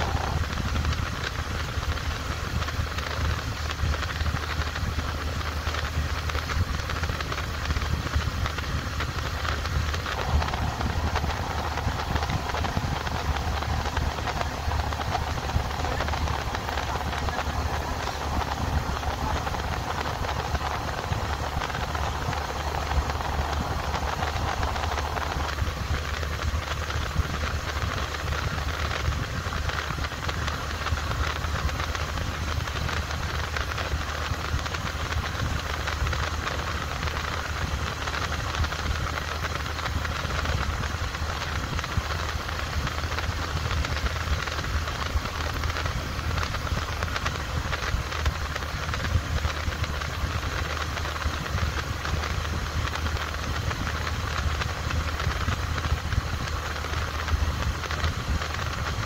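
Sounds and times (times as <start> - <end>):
motorcycle engine hum: 0.0 - 59.0
wind rushing over microphone: 0.0 - 59.0.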